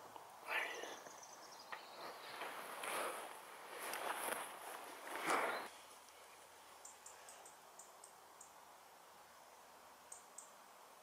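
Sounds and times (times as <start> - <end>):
faint high-pitched ticks: 5.9 - 8.6, 10.1 - 10.6.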